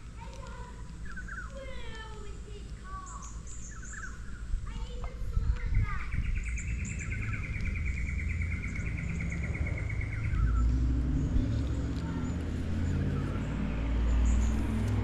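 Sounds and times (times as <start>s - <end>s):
bird trilling: 1.0s - 1.8s, 3.0s - 4.5s, 5.7s - 14.7s
low rumble: 3.7s - 15.0s.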